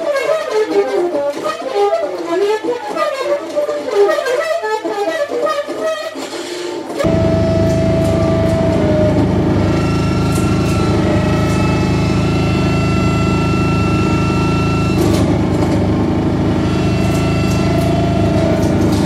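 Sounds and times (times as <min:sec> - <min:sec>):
harsh saxophone feedback drone: 0:00.0 - 0:19.0
whistling feedback tones: 0:07.0 - 0:19.0.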